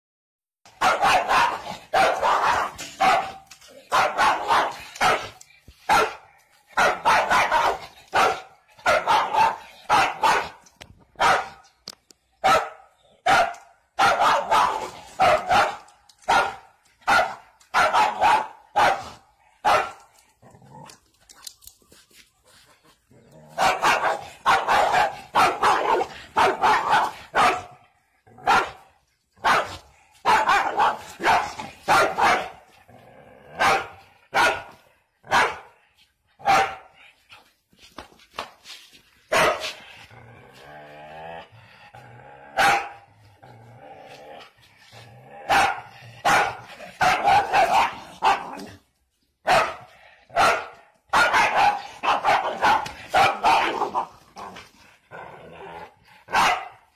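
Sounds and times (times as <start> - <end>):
dog barking: 0.7 - 10.6, 11.2 - 11.6, 12.4 - 20.0, 23.6 - 27.8, 28.4 - 28.8, 29.4 - 32.6, 33.6 - 35.8, 36.4 - 37.0, 39.3 - 39.8, 42.6 - 43.1, 45.5 - 48.7, 49.4 - 54.2, 56.3 - 56.9.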